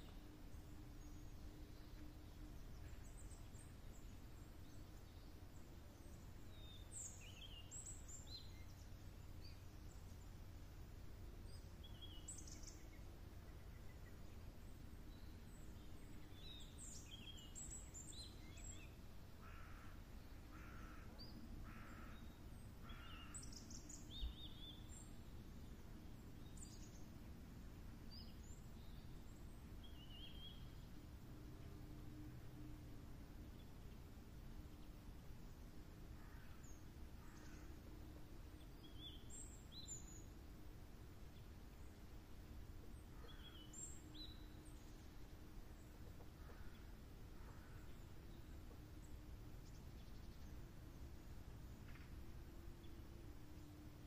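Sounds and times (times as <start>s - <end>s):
faint low rumble: 0.0s - 54.0s
small birds chirping: 33.4s - 54.0s.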